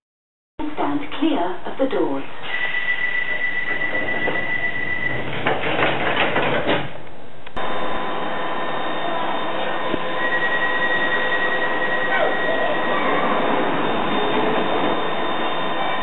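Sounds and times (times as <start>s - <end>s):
standing train hum: 0.6s - 16.0s
train high squeal: 2.4s - 5.4s, 8.8s - 16.0s
train rattling clatter: 3.3s - 7.0s, 9.4s - 16.0s.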